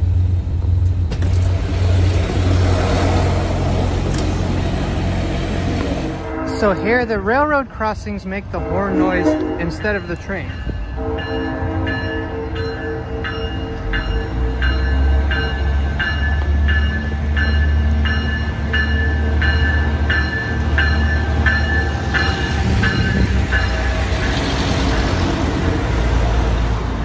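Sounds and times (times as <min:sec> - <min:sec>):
diesel railcar rumble: 0:00.0 - 0:27.0
train rushing past: 0:00.0 - 0:27.0
railroad crossing bell dinging: 0:06.1 - 0:26.5.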